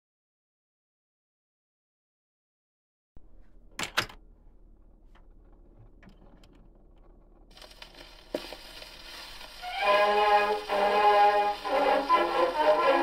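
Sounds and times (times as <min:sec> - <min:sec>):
record needle hiss and crackle: 0:03.2 - 0:13.0.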